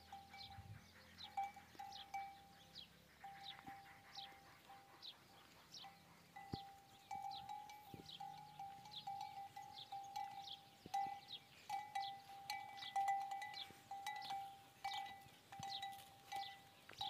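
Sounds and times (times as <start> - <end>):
camel bell ringing: 0.0 - 0.7, 1.3 - 2.5, 5.8 - 17.0.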